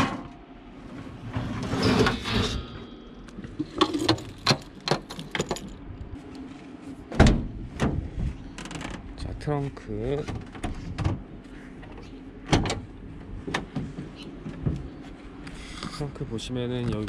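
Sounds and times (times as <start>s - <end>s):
grill tray scraping: 0.8s - 4.0s.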